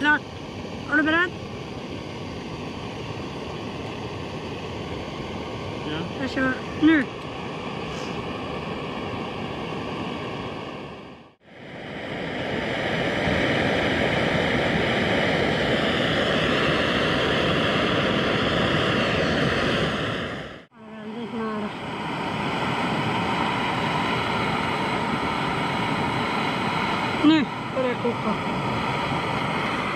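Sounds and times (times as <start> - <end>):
gas stove flame hissing: 0.0 - 11.1.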